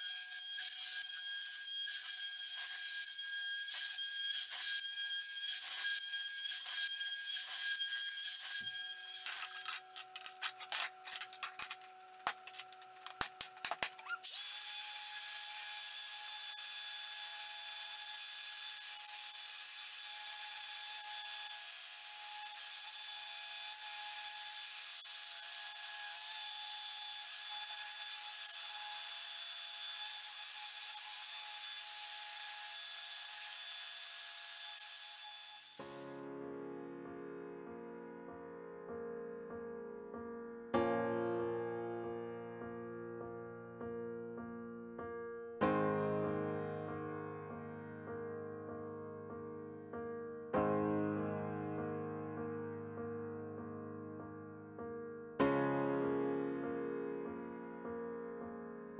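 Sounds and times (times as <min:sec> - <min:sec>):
router running: 0:05.5 - 0:11.7, 0:14.2 - 0:35.8
orbital sander whine: 0:14.2 - 0:35.9.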